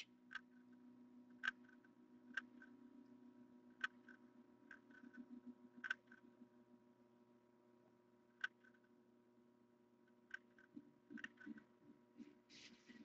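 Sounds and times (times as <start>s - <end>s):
faint hum: 0.0s - 13.0s
soft ticks: 3.8s - 6.2s.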